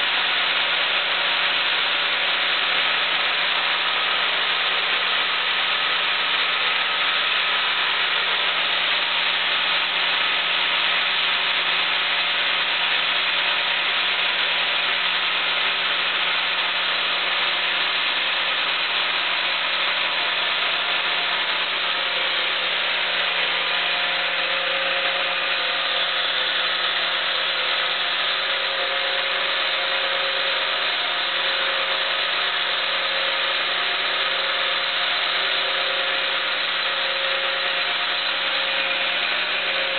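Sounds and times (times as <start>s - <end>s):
low machinery hum: 0.0s - 39.9s
band saw cutting log: 19.2s - 39.9s.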